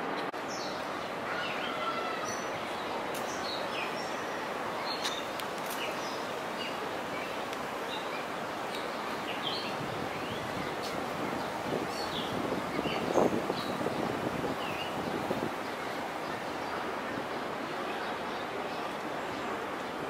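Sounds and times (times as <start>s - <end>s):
bird chirps and calls: 3.3s - 13.9s.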